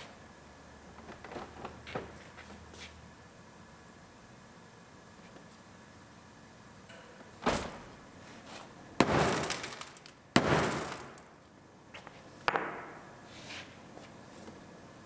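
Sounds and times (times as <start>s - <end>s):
bangs on sheet-metal door: 9.0s - 9.8s, 10.4s - 11.1s.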